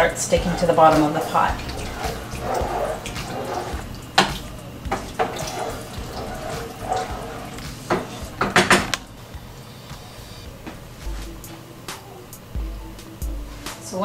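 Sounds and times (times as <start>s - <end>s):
spoon stirring thick stew: 0.2s - 8.9s.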